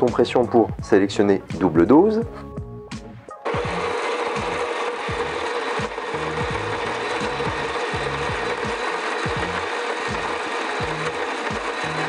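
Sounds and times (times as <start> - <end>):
electric coffee grinder grinding: 3.4 - 12.0.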